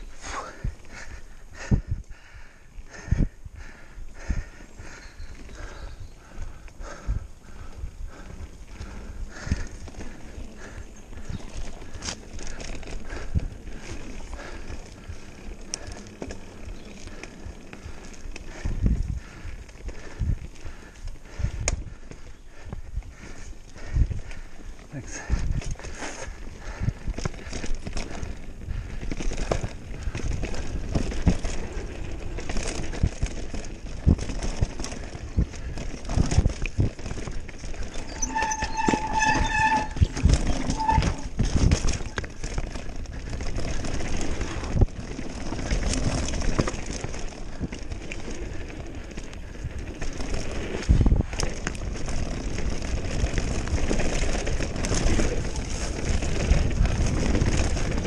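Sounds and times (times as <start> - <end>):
wind noise on microphone: 0.0 - 58.0
bike knocking and rattling: 0.1 - 58.0
tyres crunching over gravel: 27.2 - 58.0.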